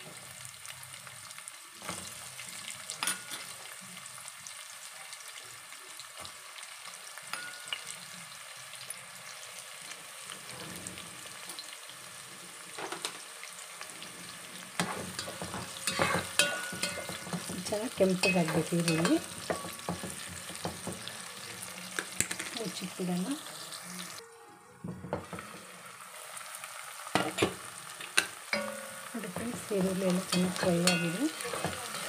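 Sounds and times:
onions sizzling in hot oil: 0.0s - 24.2s, 25.1s - 32.0s
spatula scraping pot: 14.8s - 21.1s, 28.0s - 32.0s.

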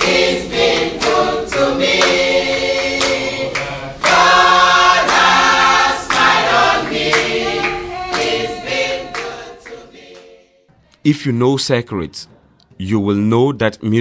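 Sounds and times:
hands clapping: 0.0s - 10.4s
women's choir singing: 0.0s - 10.8s.

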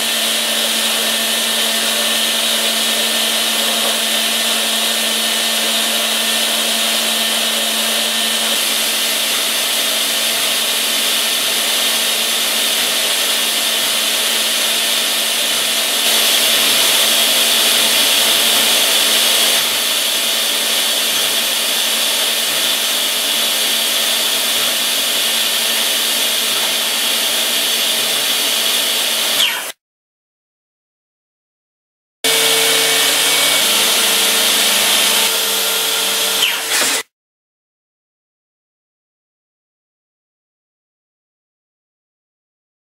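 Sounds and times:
high-speed spindle whine: 0.0s - 29.7s, 32.3s - 37.0s.

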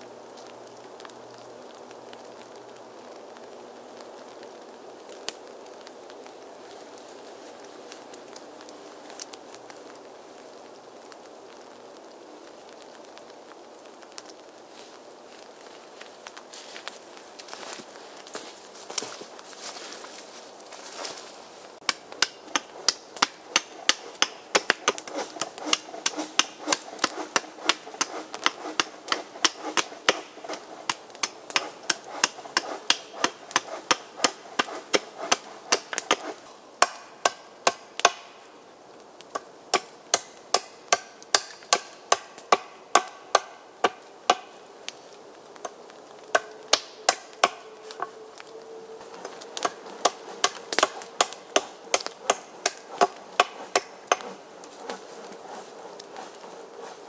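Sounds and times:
hatchet chopping wood: 21.8s - 38.3s, 39.3s - 44.5s, 46.3s - 47.6s, 49.6s - 56.2s.

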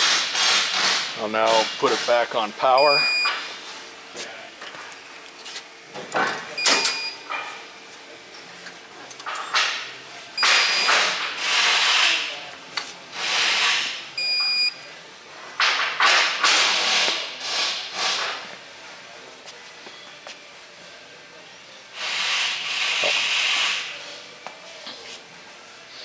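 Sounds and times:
loud bursts of hiss: 0.0s - 2.3s, 10.4s - 12.3s, 13.1s - 14.0s, 16.0s - 18.5s, 21.9s - 24.0s.

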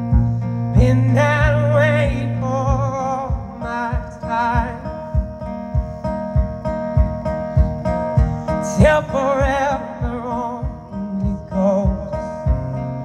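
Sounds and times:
man singing: 0.0s - 5.5s, 8.2s - 13.0s
acoustic guitar: 0.0s - 13.0s
low thumping beat: 0.0s - 13.0s.

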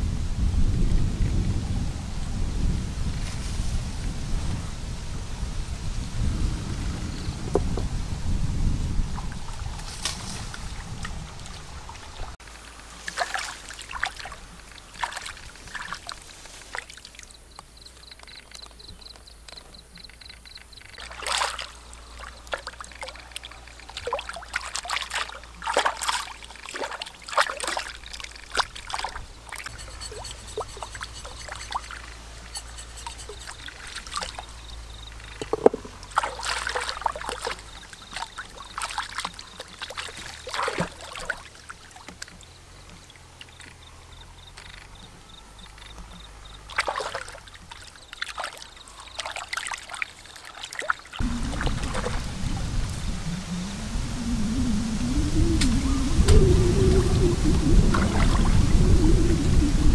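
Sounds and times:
water trickling: 9.1s - 53.9s
hands splashing in water: 13.1s - 17.2s, 21.0s - 32.1s, 35.3s - 37.6s, 38.2s - 41.5s, 46.7s - 52.3s.

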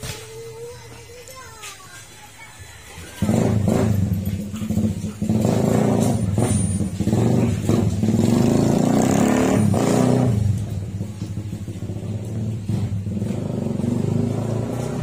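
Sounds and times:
engine revving: 3.1s - 15.0s.

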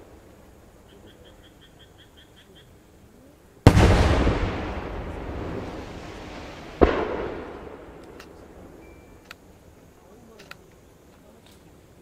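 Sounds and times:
firework shells exploding: 3.6s - 9.4s.

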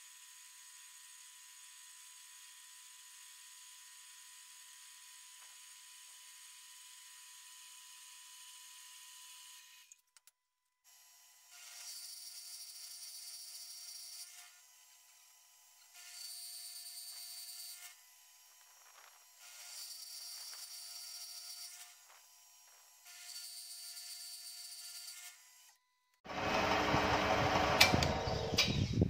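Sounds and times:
metal-cutting band saw running: 26.3s - 28.8s.

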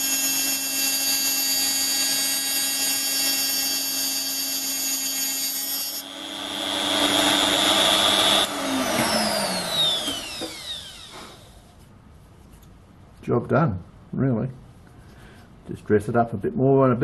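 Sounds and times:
grinder spinning down: 0.0s - 11.7s
grinder whine on spinning metal: 0.0s - 11.8s.

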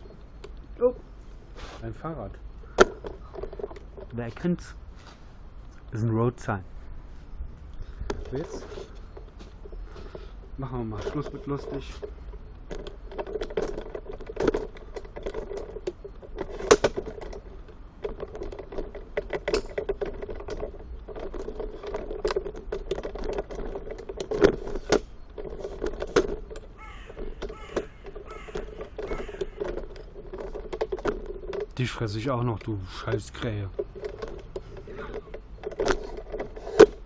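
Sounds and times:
sharp clicks and knocks: 2.7s - 4.6s, 7.7s - 37.0s
crow cawing: 26.8s - 29.7s.

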